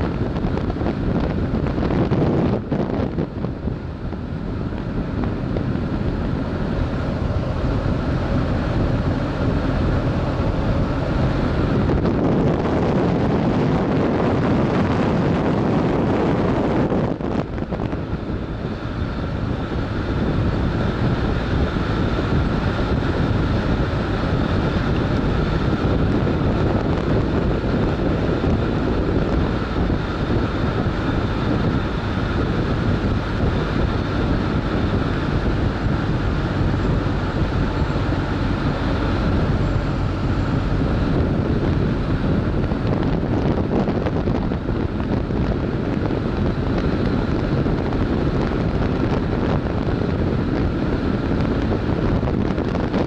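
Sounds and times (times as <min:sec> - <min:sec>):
motorcycle engine cruising: 0:00.0 - 0:53.0
wind rush on microphone: 0:00.0 - 0:53.0.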